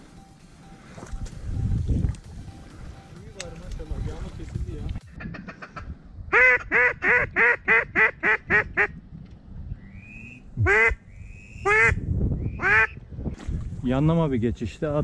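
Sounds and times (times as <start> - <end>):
duck quacking: 5.1 - 8.9, 10.6 - 11.0, 11.6 - 12.0, 12.6 - 13.0.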